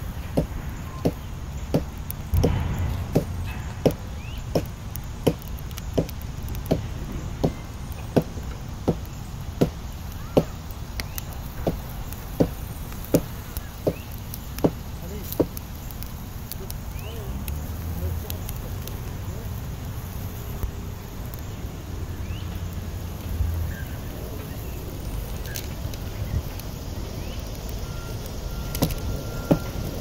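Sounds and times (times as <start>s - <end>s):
dull chopping strikes: 0.3s - 10.6s, 12.4s - 14.0s
short rush of noise: 2.3s - 5.3s.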